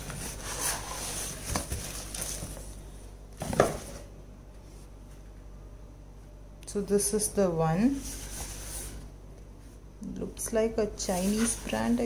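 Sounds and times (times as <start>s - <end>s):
cardboard rubbing and scraping: 0.0s - 2.7s, 11.1s - 12.0s.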